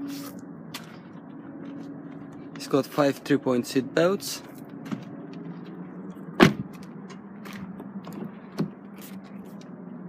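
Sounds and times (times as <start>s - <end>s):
steady low hum: 0.0s - 10.0s
car door shutting: 6.4s - 8.9s.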